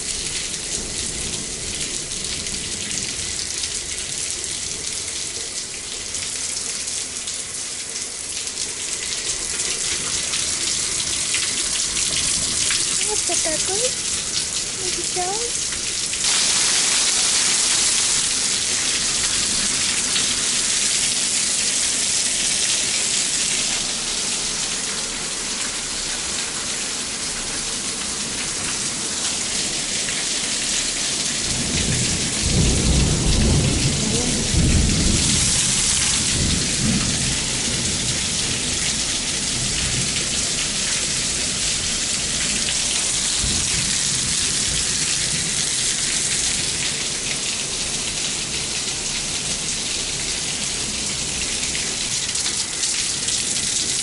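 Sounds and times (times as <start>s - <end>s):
heavy rain: 0.0s - 54.0s
thunder rumbling: 31.4s - 40.3s, 43.0s - 46.8s.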